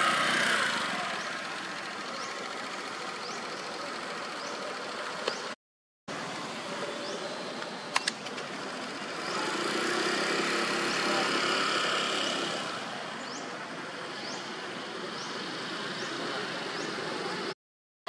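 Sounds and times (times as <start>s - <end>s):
sharp clicks: 7.9s - 8.4s.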